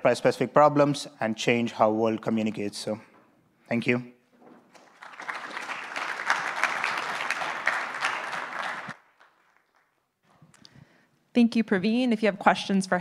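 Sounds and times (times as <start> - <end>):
audience applauding: 4.7 - 10.0.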